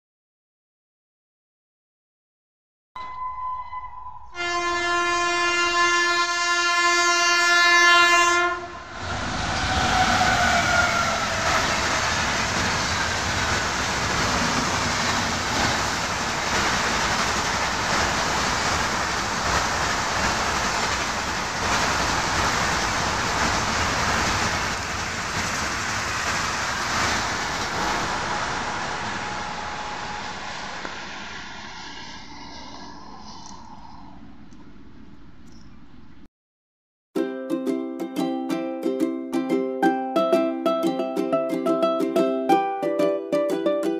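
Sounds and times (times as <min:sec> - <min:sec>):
locomotive horn blast: 0:03.8 - 0:09.0
train coaches rumbling by: 0:04.4 - 0:35.3.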